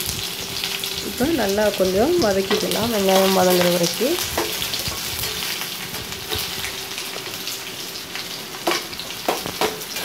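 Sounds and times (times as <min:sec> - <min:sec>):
onions sizzling in hot oil: 0:00.0 - 0:10.0
spatula knocking and scraping pan: 0:02.2 - 0:06.6, 0:08.6 - 0:10.0.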